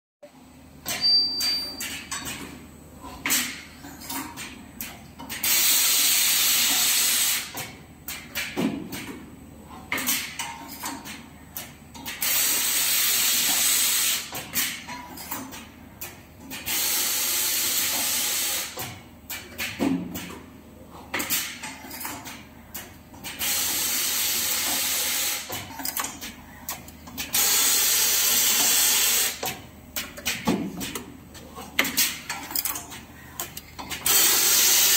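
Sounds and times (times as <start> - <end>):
welding machine hissing: 12.3 - 14.3, 23.4 - 25.5, 27.4 - 29.4, 34.1 - 34.9
rapid clicks and knocks of fixtures: 17.8 - 23.9, 24.5 - 27.7, 28.3 - 34.9.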